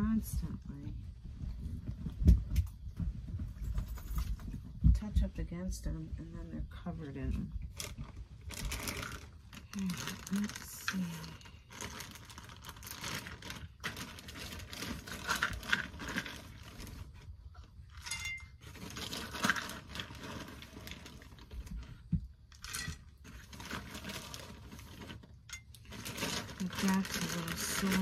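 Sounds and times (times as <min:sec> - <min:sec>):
rustling and light clicking: 0:01.3 - 0:05.0.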